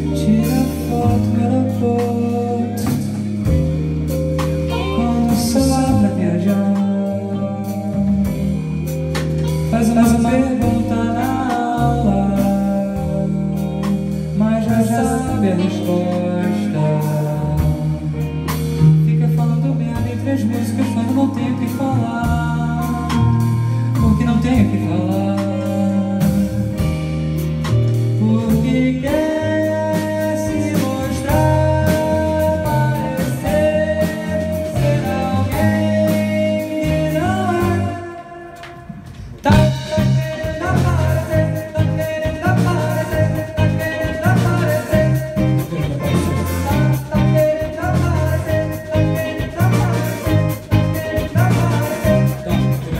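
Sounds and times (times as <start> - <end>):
man singing: 0.0 - 52.9
rock band playing: 0.0 - 52.9.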